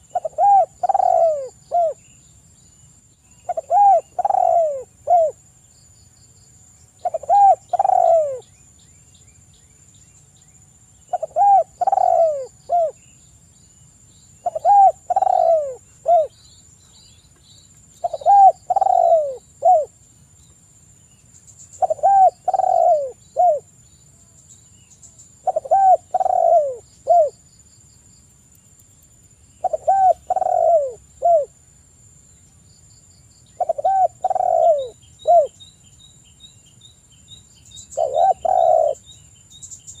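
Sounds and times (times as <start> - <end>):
dove cooing: 0.0 - 2.0, 3.5 - 5.4, 7.0 - 8.4, 11.1 - 13.0, 14.4 - 16.4, 18.0 - 20.0, 21.8 - 23.7, 25.4 - 27.4, 29.6 - 31.6, 33.6 - 35.6, 38.0 - 39.0.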